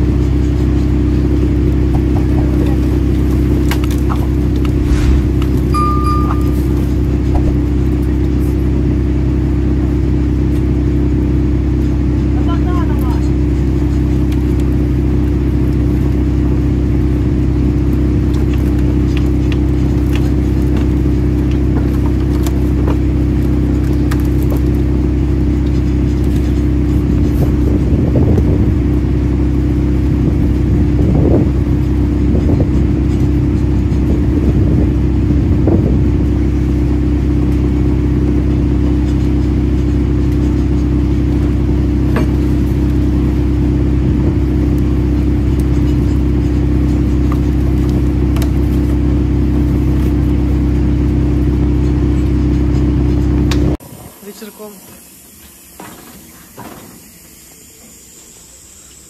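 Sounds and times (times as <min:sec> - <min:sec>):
machinery droning: 0:00.0 - 0:59.0
wood slabs scraping on steel: 0:04.0 - 0:05.7.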